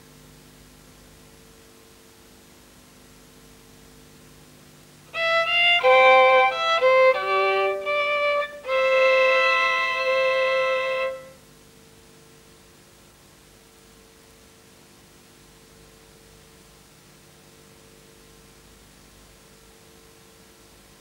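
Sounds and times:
mains hum: 0.0s - 21.0s
tape hiss: 0.0s - 21.0s
solo violin: 5.1s - 11.4s.

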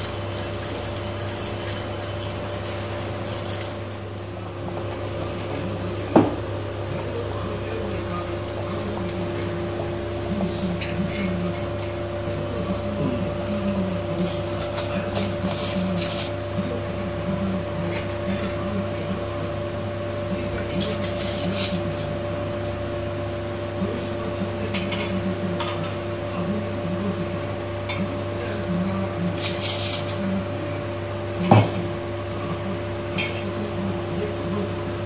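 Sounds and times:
rice grains pouring into liquid: 0.0s - 4.4s
pot bubbling at a boil: 0.0s - 24.4s
steady hum: 0.0s - 35.0s.

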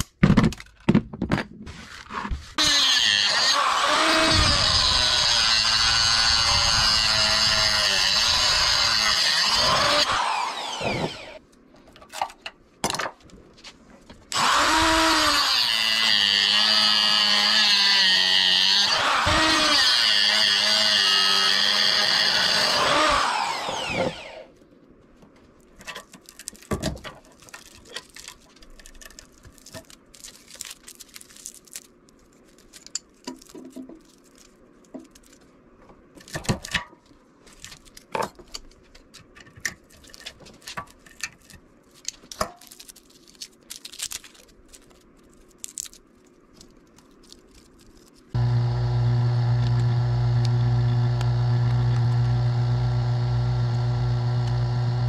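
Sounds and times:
angle grinder spinning down: 2.6s - 11.4s, 14.4s - 24.5s, 48.4s - 55.0s
electric motor humming: 48.4s - 55.0s.

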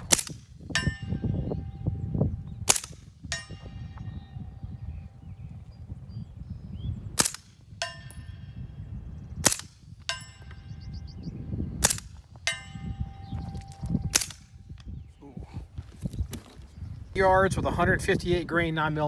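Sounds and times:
suppressed gunshots: 0.0s - 1.0s, 2.6s - 4.2s, 7.2s - 8.3s, 9.4s - 10.5s, 11.8s - 12.7s
bullet clanging on steel plate: 0.7s - 1.9s, 2.8s - 4.3s, 7.7s - 8.6s, 10.0s - 10.9s, 11.8s - 14.9s.

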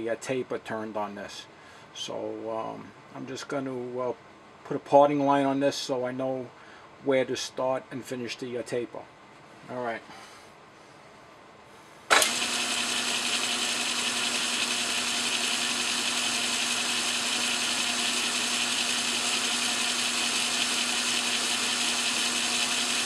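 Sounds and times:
metal lathe humming: 12.1s - 23.0s.

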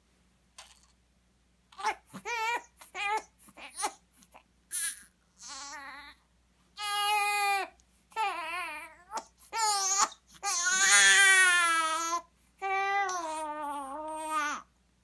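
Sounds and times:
baby crying: 1.8s - 4.0s, 4.7s - 6.2s, 6.8s - 14.7s.

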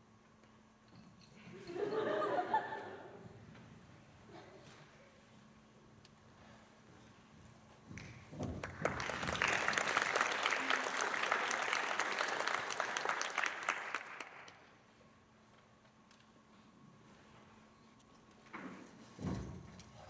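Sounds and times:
audience applauding: 8.0s - 14.8s.

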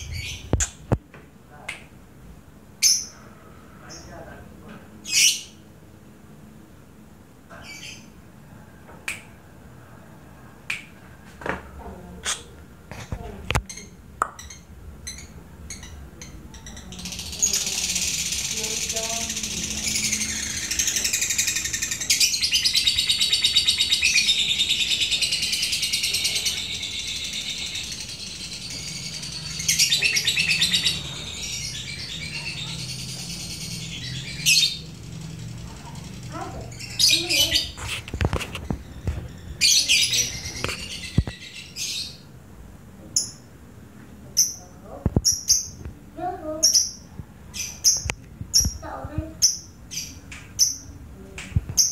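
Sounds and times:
lovebird chirps: 13.7s - 35.4s
lovebirds high rattling trill: 16.6s - 24.3s.

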